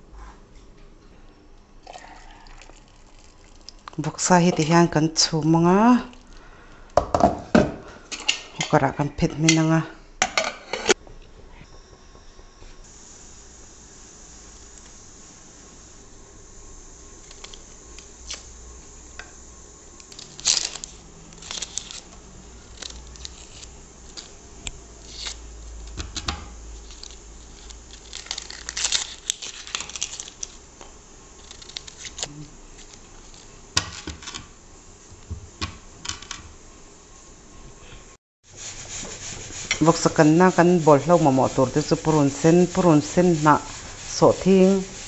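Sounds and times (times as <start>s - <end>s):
onion skins crackling and tearing: 2.9s - 4.1s, 17.1s - 18.8s, 20.0s - 34.4s.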